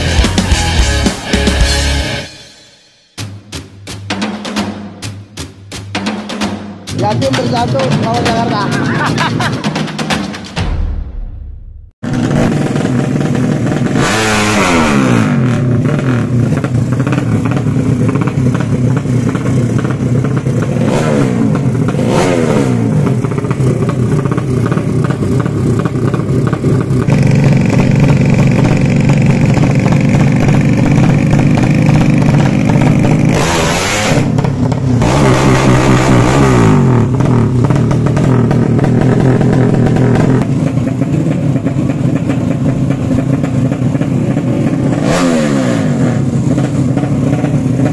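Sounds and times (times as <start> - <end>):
motorcycle engine revving: 0.0 - 2.4, 12.0 - 47.9.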